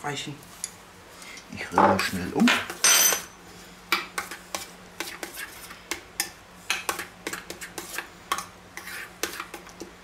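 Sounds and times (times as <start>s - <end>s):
spoon stirring in metal bowl: 4.2s - 9.9s.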